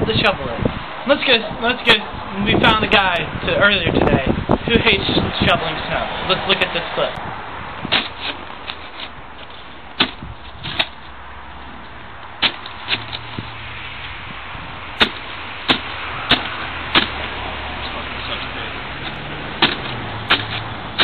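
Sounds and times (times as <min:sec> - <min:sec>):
snow shovel scraping pavement: 0:07.9 - 0:11.0.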